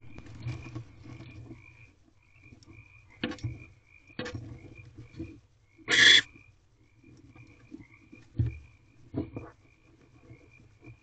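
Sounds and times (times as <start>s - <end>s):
short chirping calls: 5.9s - 6.3s.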